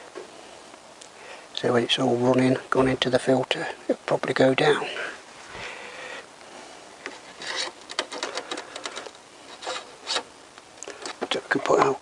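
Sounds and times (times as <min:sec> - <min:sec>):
cloth rubbing metal dipstick: 0:07.1 - 0:10.3.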